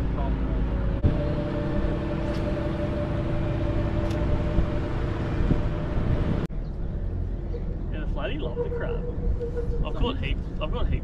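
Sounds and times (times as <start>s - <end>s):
low rumble: 0.0s - 11.0s
electric trolling motor whine: 1.0s - 6.4s.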